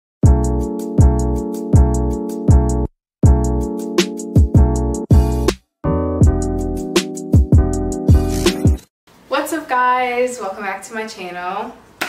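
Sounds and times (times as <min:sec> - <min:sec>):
intro music with deep bass: 0:00.3 - 0:08.8.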